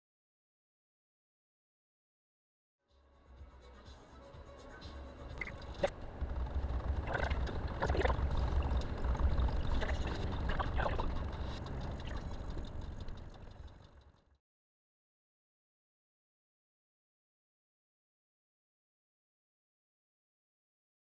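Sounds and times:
car road and engine rumble: 0:05.4 - 0:14.3.

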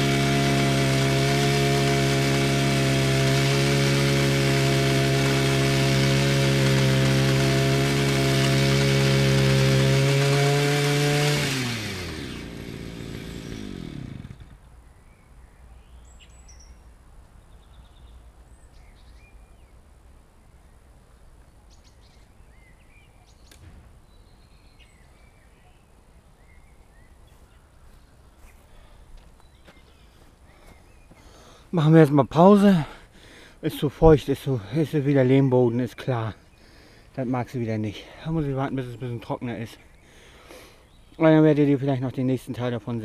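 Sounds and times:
garden tiller engine running: 0:00.0 - 0:14.6
sharp click: 0:23.5 - 0:23.8.

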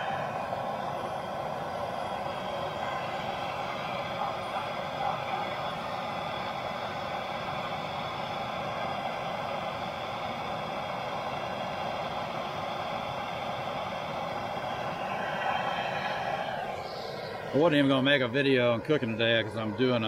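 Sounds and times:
gas torch hissing: 0:00.0 - 0:20.0.

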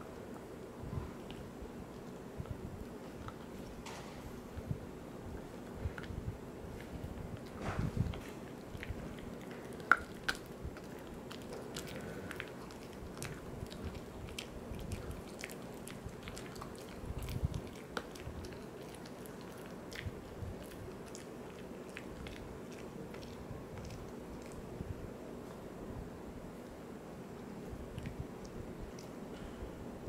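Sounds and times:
dog crunching a chew: 0:01.2 - 0:04.0, 0:05.6 - 0:24.8
sharp cracks of chew: 0:06.8 - 0:24.6, 0:27.9 - 0:29.4.

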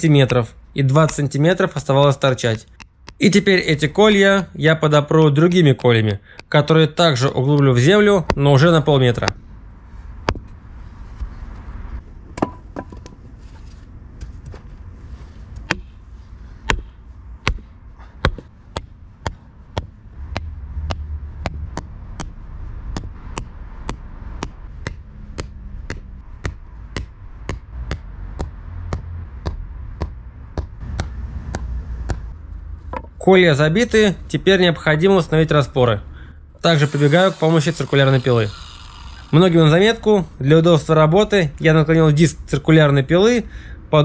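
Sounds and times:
sledgehammer knocking stakes: 0:16.7 - 0:22.3.

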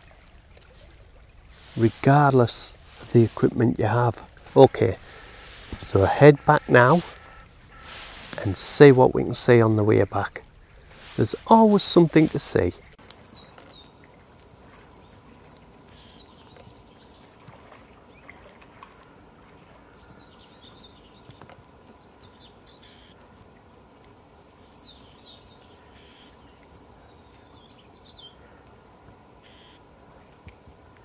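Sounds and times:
birds chirping: 0:01.4 - 0:17.3, 0:19.9 - 0:29.8
bird trilling: 0:04.4 - 0:08.6, 0:22.8 - 0:23.1, 0:29.4 - 0:29.8.

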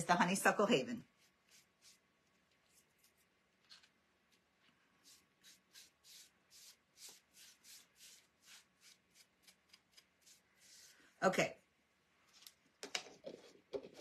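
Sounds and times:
paintbrush strokes on wood: 0:01.0 - 0:11.2.

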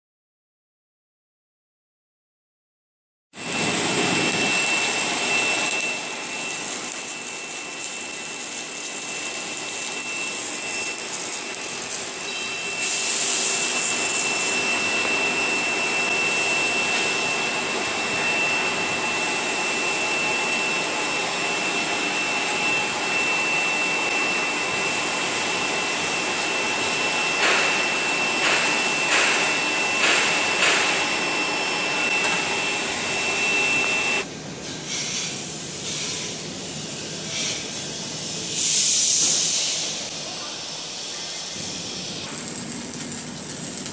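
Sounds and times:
welding machine rush and whine: 0:03.3 - 0:43.9
loud hiss: 0:08.9 - 0:34.2, 0:34.8 - 0:43.9.

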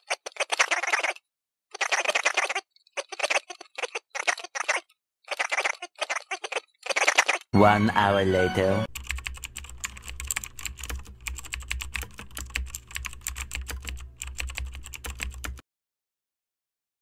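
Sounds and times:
computer keyboard typing: 0:08.8 - 0:15.6.

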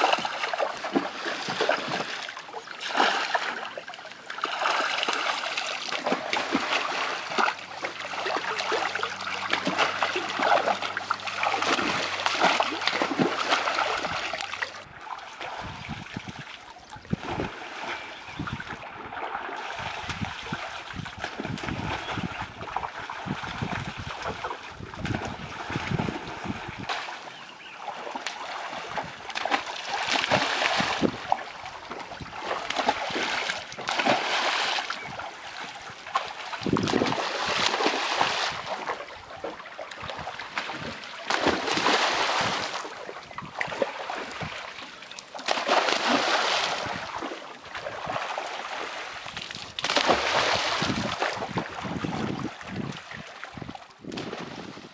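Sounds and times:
fish splashing in a net: 0:00.0 - 0:14.8, 0:27.8 - 0:44.6, 0:45.3 - 0:52.0
water slapping and splattering: 0:00.0 - 0:54.9.

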